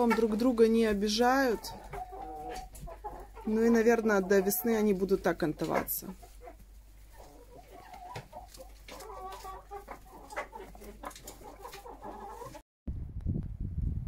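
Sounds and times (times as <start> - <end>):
hens clucking: 0.0 - 12.6.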